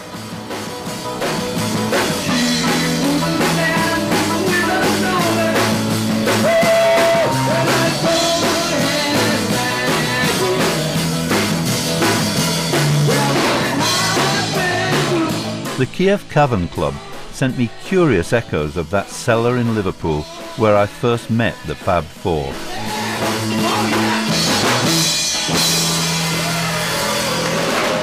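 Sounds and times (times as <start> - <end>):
drum kit beat: 0.0 - 28.0
electric guitar: 0.0 - 28.0
live rock band playing: 0.0 - 28.0
man singing: 2.1 - 11.0, 13.0 - 25.1.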